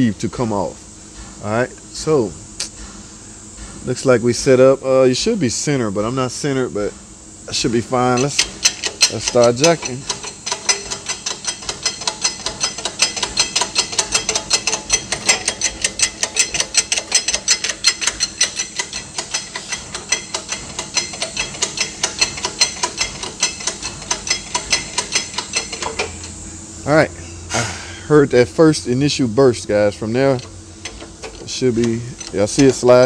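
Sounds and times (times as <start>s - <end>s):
hydraulic press pump clicking: 7.5s - 26.4s, 29.6s - 33.0s
metallic rattle: 7.6s - 26.4s, 29.1s - 33.0s.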